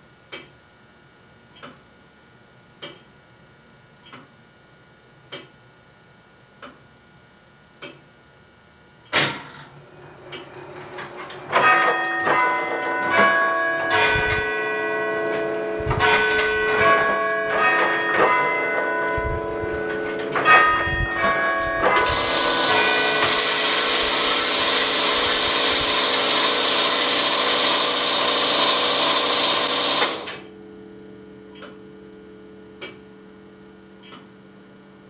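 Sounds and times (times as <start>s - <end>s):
clock mechanism ticking: 0.3s - 0.6s, 1.5s - 1.8s, 2.8s - 3.1s, 4.0s - 4.3s, 7.8s - 8.0s, 31.5s - 31.8s, 34.0s - 34.3s
loud mechanical clunk: 9.1s - 11.7s
bells chiming: 11.6s - 23.3s.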